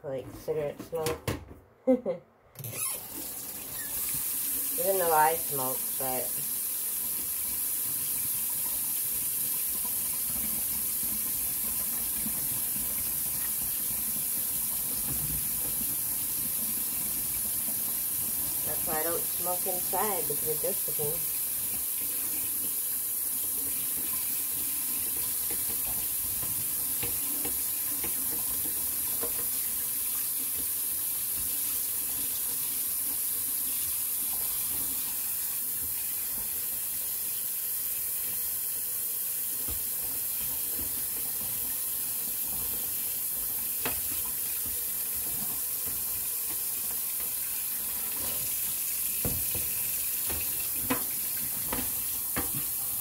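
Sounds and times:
tap running into sink: 7.1 - 19.1, 23.6 - 33.2, 39.5 - 53.0.

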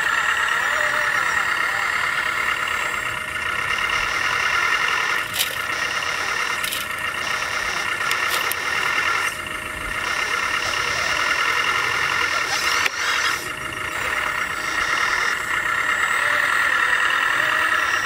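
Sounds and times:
high whine of small motors: 0.0 - 18.0
sharp clicks: 5.0 - 9.4.

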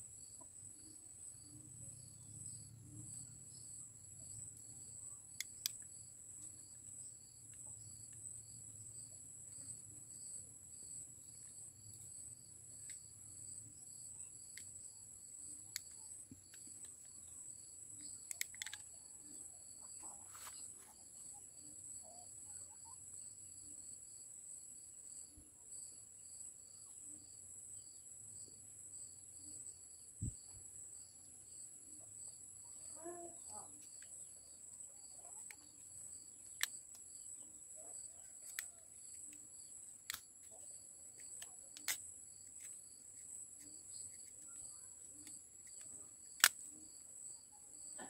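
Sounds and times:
faint sharp clicks: 45.2 - 46.6.

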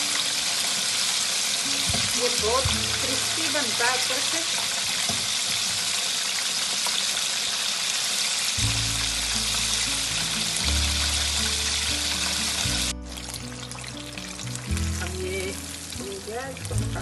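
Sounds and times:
oil sizzling: 0.0 - 17.0
background music with low bass: 1.7 - 3.4, 8.6 - 17.0.

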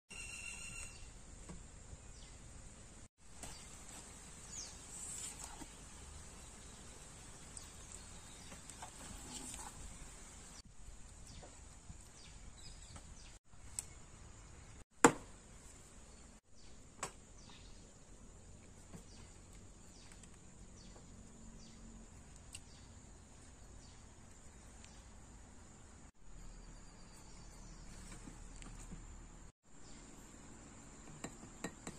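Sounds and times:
bird chirps: 26.2 - 28.2.

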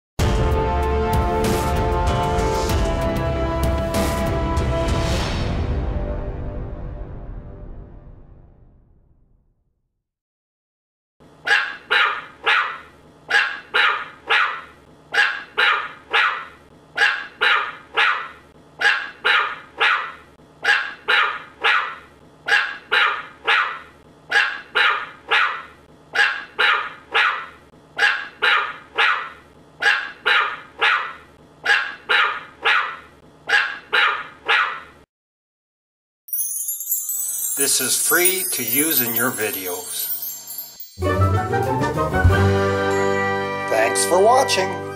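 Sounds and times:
puppy barking: 11.4 - 35.0.

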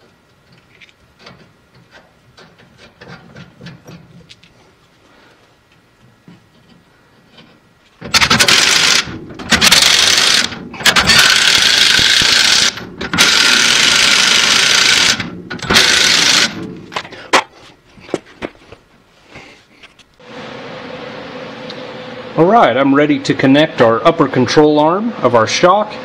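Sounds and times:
impact wrench hammering: 8.0 - 16.8.

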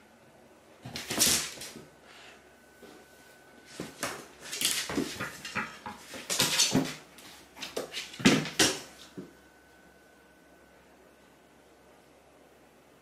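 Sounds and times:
cat paws scuffing on hard floor: 3.7 - 9.3.

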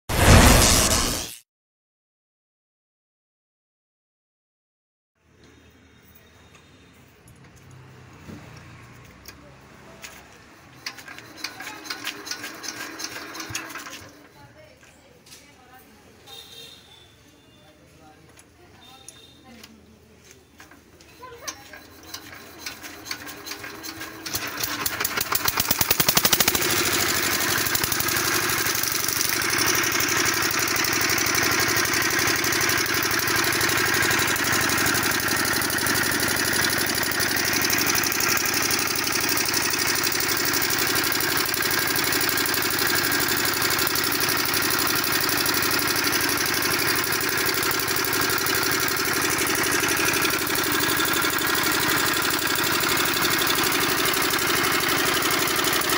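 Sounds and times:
engine being hand-cranked: 10.0 - 14.4, 20.6 - 55.9
diesel engine running: 23.6 - 55.9.

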